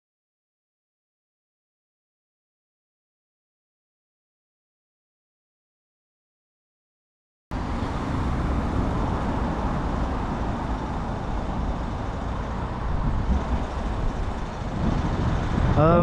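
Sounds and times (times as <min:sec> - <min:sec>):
road traffic noise: 0:07.5 - 0:16.0.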